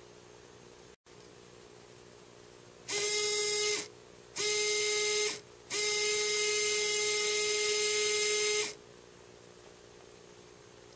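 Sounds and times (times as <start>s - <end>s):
small electric motor whining: 2.9s - 8.8s.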